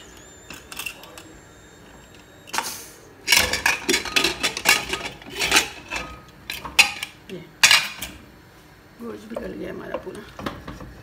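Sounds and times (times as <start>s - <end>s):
pressure cooker hiss: 2.5s - 3.2s
metal lid clanks and rattles: 3.3s - 8.2s.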